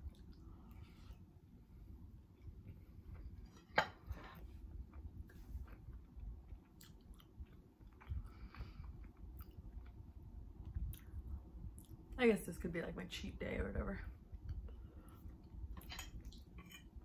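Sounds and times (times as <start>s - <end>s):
chewing with mouth closed: 5.6s - 10.0s.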